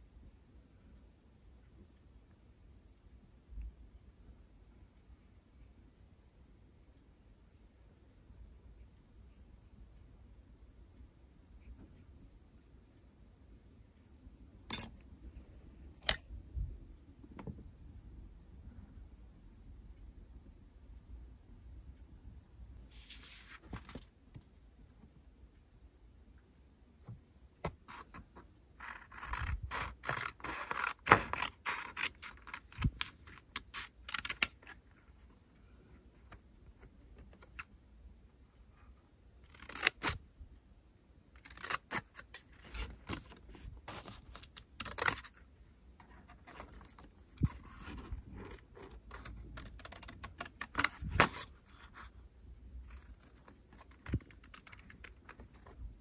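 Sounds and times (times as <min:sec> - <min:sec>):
paper sheet crinkling: 0:22.9 - 0:24.1
scissors snipping paper: 0:28.8 - 0:34.8, 0:39.5 - 0:40.2, 0:41.4 - 0:43.2.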